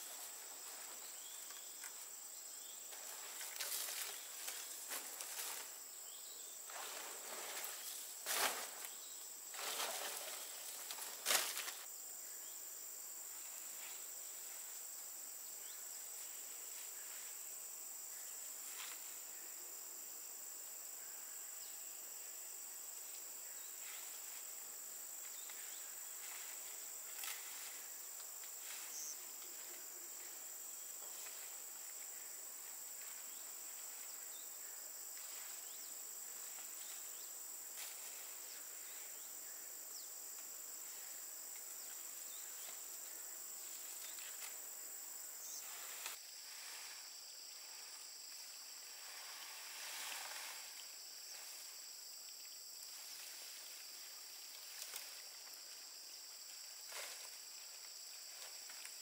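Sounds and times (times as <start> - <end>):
palm fronds rustling: 0.0 - 6.0, 6.6 - 11.9, 23.7 - 39.3, 40.3 - 59.0
insect drone: 0.0 - 59.0.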